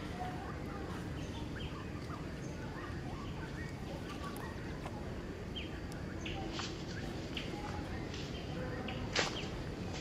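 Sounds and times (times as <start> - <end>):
birds chirping: 0.0 - 10.0
low background noise: 0.0 - 10.0.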